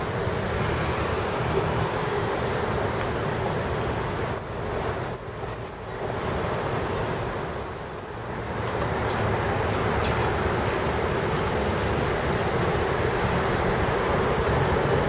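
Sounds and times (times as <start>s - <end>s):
traffic: 0.0s - 15.0s
heavy construction machinery rumbling: 8.1s - 15.0s.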